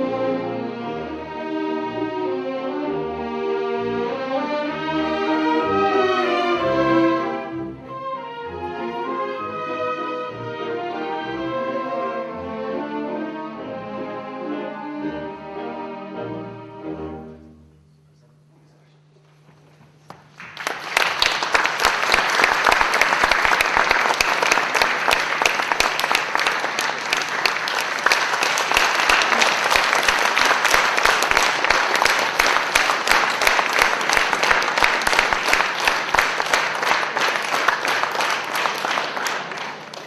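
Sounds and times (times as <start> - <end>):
audience applauding: 19.9 - 40.0.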